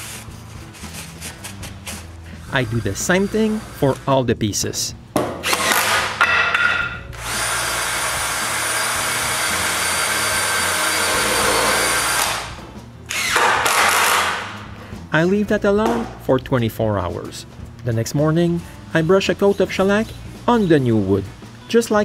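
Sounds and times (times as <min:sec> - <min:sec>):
cordless drill driving screws: 0:02.5 - 0:04.1, 0:05.4 - 0:06.2, 0:07.1 - 0:12.5, 0:13.1 - 0:14.5.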